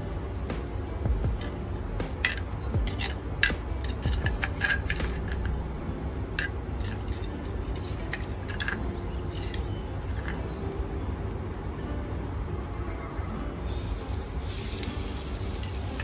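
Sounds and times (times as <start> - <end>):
steady low hum: 0.0 - 16.0
hot oil crackling in a frying pan: 13.7 - 16.0.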